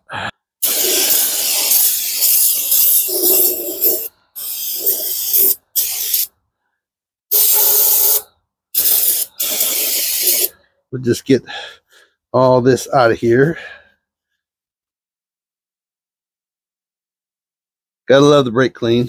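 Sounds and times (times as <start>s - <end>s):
aerosol spray hissing: 0.6s - 6.3s, 7.3s - 10.5s.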